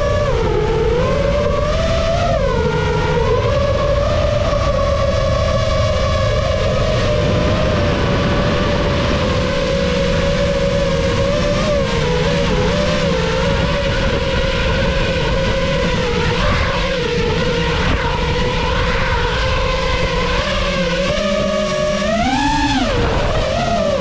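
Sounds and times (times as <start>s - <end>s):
drone motors whining: 0.0s - 24.0s
low rush of air: 5.8s - 10.6s.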